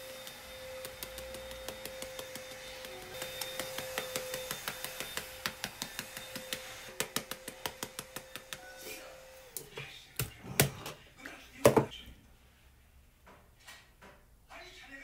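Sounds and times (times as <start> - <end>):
fingertips tapping skin: 0.8 - 8.6.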